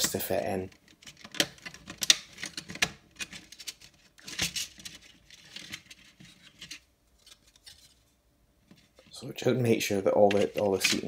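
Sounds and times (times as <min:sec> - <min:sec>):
small plastic clicks and scrapes: 0:00.7 - 0:08.0.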